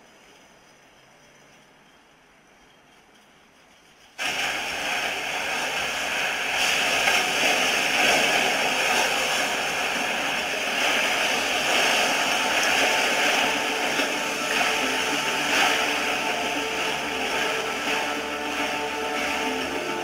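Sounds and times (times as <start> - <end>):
river rapids rushing: 4.2 - 20.0.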